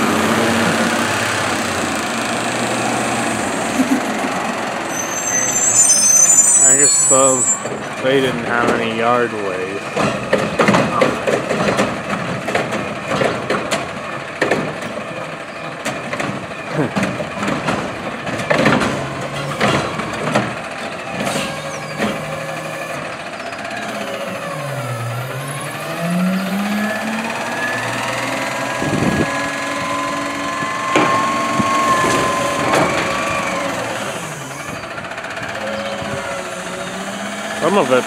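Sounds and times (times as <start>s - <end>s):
garbage truck engine droning: 0.0s - 38.0s
hydraulic whine: 4.8s - 7.9s, 21.2s - 38.0s.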